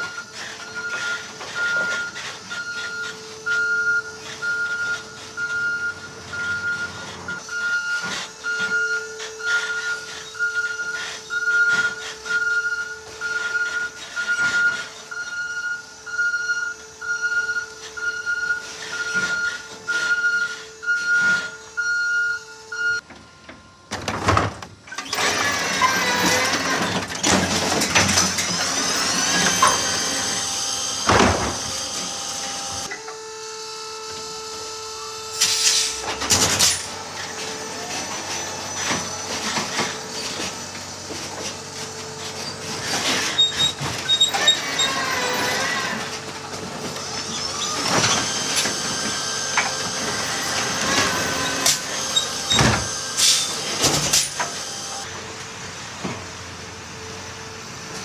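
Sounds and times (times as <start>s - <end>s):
warning beeper beeping: 0.0s - 23.0s
electric motor whines: 25.0s - 55.1s.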